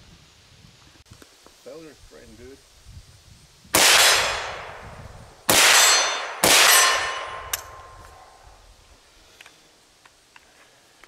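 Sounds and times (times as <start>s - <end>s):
suppressed rifle shots: 3.8s - 4.8s, 5.5s - 8.2s.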